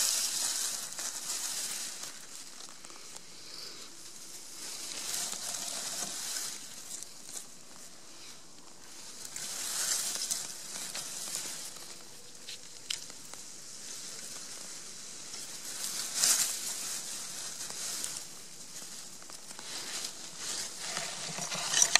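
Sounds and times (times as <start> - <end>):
dry grass rustling: 0.0 - 21.9
faint snaps of stems: 8.5 - 14.7.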